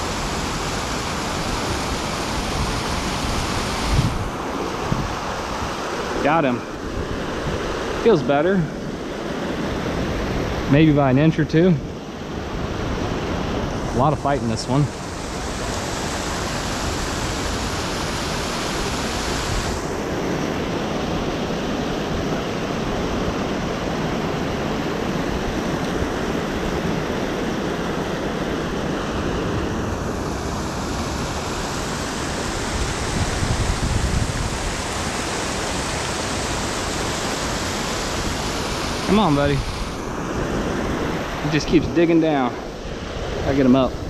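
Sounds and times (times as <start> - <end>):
wind rumble on microphone: 0.0 - 8.2, 28.8 - 35.9
water rushing over spillway: 0.0 - 11.2, 12.3 - 43.8.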